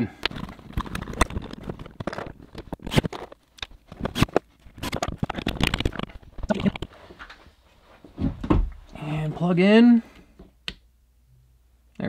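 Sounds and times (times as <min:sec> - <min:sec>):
plastic clicks and scrapes: 0:00.2 - 0:06.9.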